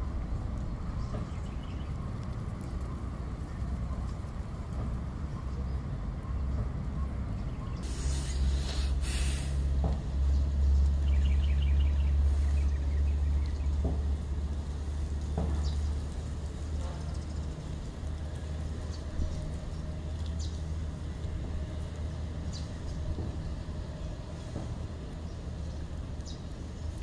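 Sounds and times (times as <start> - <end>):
vehicle engine rumbling: 0.0 - 27.0
short hisses: 7.8 - 9.7.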